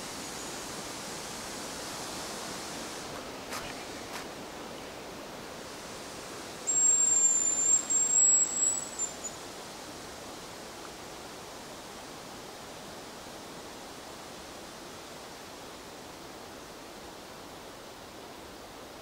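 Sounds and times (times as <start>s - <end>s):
steady outdoor hiss: 0.0s - 19.0s
bird whistle rising: 6.7s - 9.4s.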